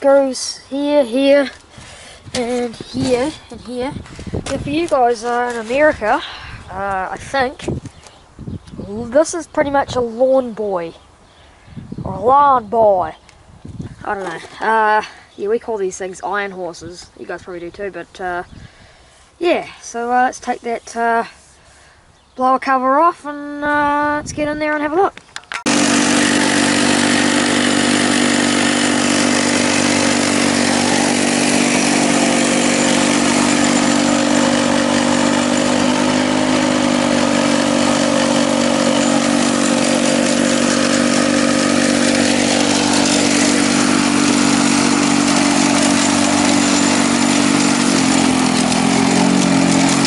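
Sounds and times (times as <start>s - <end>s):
lawn mower engine running: 0.1s - 7.6s, 25.5s - 50.0s.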